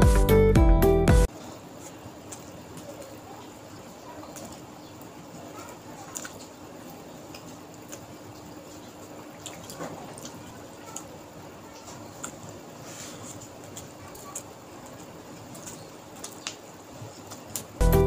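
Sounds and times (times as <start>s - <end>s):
wet chewing and mouth smacks: 12.0s - 12.5s, 13.1s - 16.6s.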